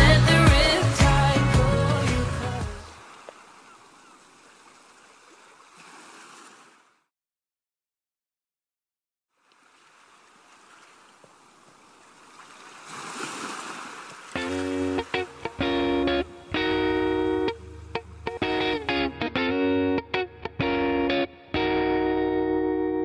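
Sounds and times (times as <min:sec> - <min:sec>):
music: 0:00.0 - 0:02.9, 0:14.4 - 0:23.0
ocean surf: 0:00.0 - 0:06.9, 0:09.5 - 0:19.1.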